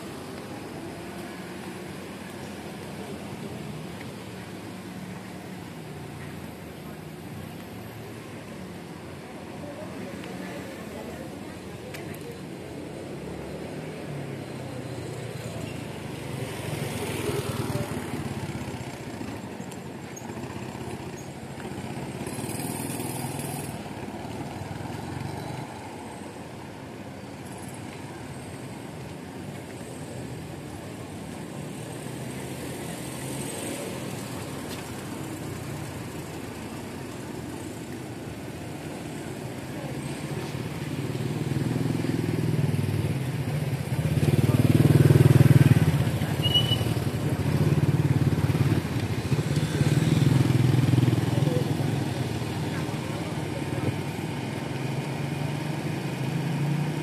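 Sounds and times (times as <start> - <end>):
motorcycle running: 40.4 - 54.2.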